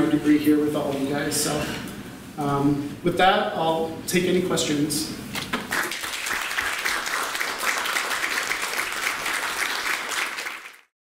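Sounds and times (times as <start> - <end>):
audience applauding: 5.6 - 10.9.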